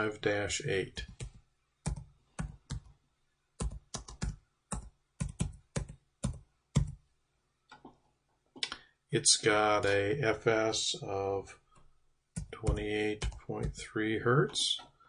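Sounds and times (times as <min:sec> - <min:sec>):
typing on a keyboard: 0:01.0 - 0:02.9, 0:03.6 - 0:07.0, 0:12.4 - 0:13.8.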